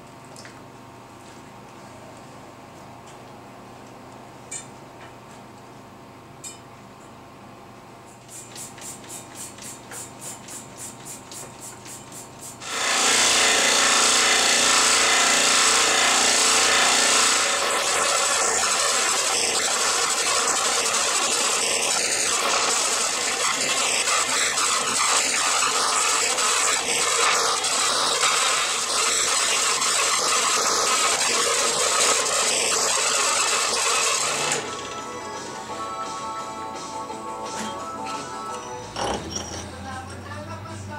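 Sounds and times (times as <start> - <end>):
scroll saw cutting wood: 12.6 - 35.0.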